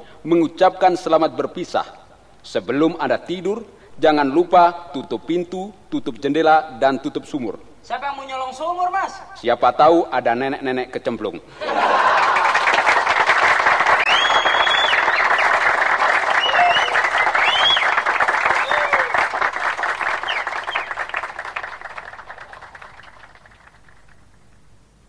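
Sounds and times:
audience applauding: 11.6 - 24.6
high whistles: 14.0 - 19.4, 20.0 - 21.2.

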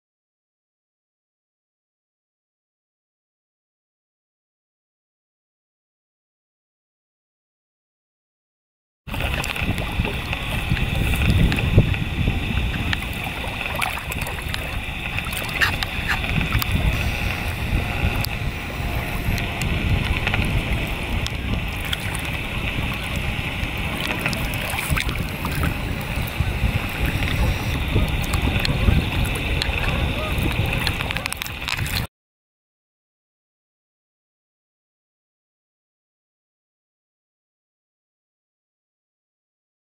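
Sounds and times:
river water splashing: 9.1 - 32.1
wind on microphone: 9.1 - 32.1.

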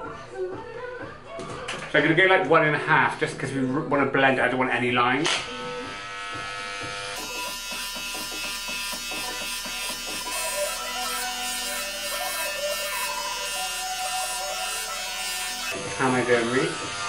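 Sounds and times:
electric hair clippers buzzing: 5.2 - 17.0.

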